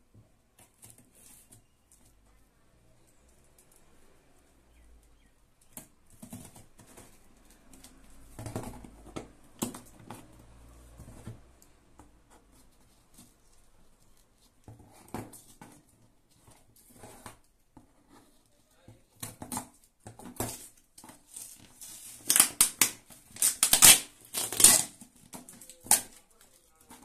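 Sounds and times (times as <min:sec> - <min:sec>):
scissors cutting packing tape: 0:21.5 - 0:26.4.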